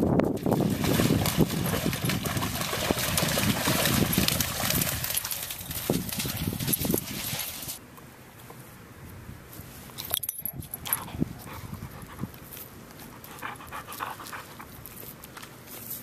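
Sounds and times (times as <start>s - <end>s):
dog panting: 10.9s - 12.4s, 13.0s - 14.8s.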